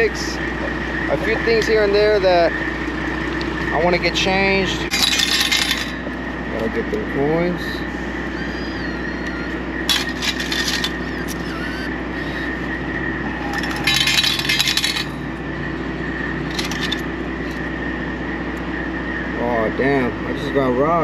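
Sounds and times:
steady hum: 0.0 - 21.0
coins clattering into metal cup: 4.9 - 6.0, 9.9 - 11.5, 13.4 - 15.2, 16.5 - 17.0
coins clinking: 4.9 - 6.1, 9.3 - 12.5, 13.3 - 15.3, 16.4 - 17.6.

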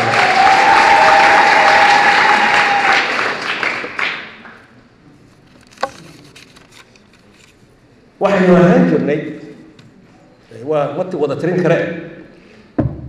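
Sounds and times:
audience applause: 0.0 - 4.6.

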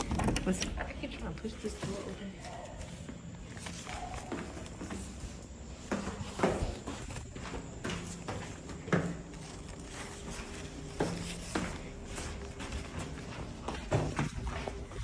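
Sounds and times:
footsteps on tiled floor: 0.0 - 15.0.

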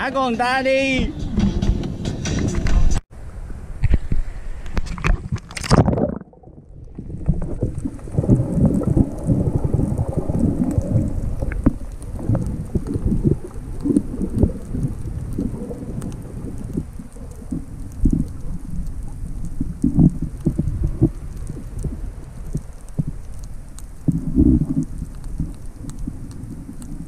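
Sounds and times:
underwater bubbling: 3.2 - 27.0
muffled underwater knocks and rumbles: 3.8 - 23.2
water splashing over camera: 3.8 - 27.0.

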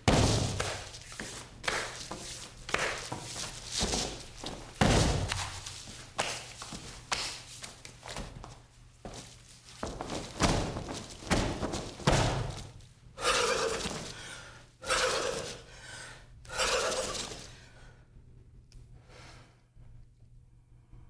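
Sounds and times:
dull thumps: 0.0 - 1.0, 2.2 - 5.8, 9.8 - 12.8
forceful breaths out: 13.2 - 17.9.

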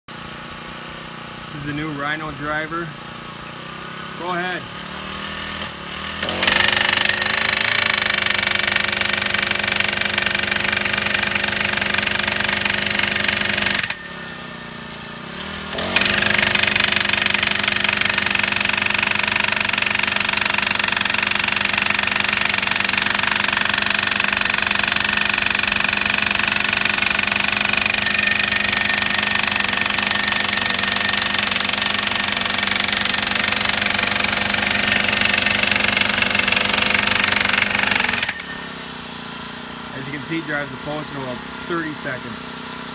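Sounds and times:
small engine running: 0.1 - 42.9
post driver hammering: 5.5 - 14.7, 15.5 - 38.8.

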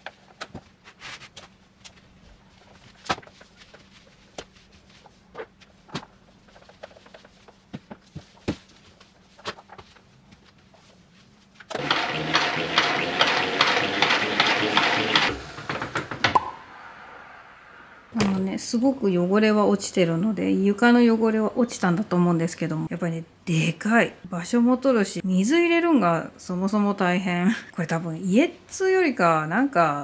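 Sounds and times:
spin mop basket whirring: 11.6 - 16.8.

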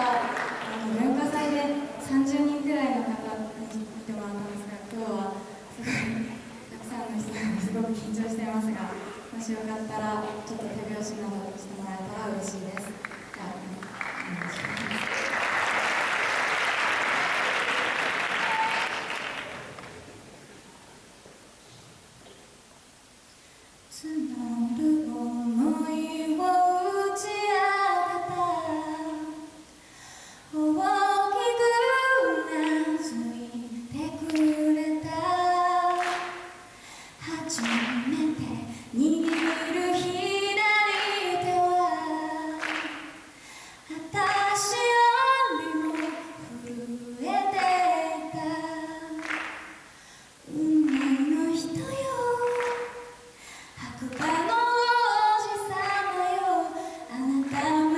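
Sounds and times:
woman singing unaccompanied: 0.0 - 14.0, 23.9 - 29.7, 30.5 - 43.3, 43.9 - 49.6, 50.4 - 57.9.

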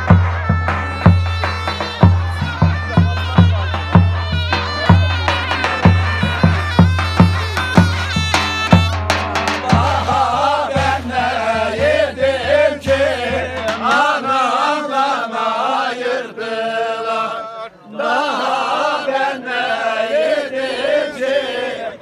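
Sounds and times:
low evenly spaced beat: 0.0 - 14.6
men singing in chorus: 9.4 - 22.0.

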